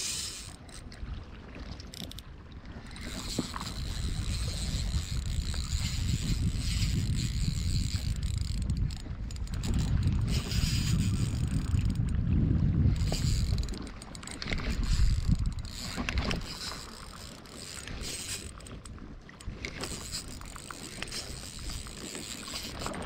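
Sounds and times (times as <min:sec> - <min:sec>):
fishing reel clicking: 0:00.0 - 0:01.0, 0:01.8 - 0:12.2, 0:12.8 - 0:23.0
wind buffeting microphone: 0:02.3 - 0:23.0.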